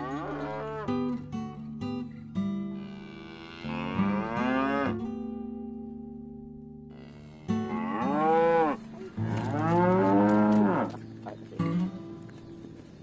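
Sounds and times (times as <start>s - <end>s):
cattle mooing: 0.0s - 1.0s, 2.8s - 5.0s, 6.9s - 11.0s.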